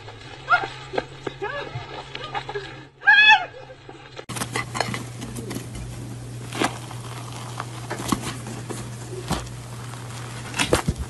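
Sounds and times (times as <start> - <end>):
steady low hum: 3.6 - 11.0
cake tearing with faint crackling: 5.1 - 11.0.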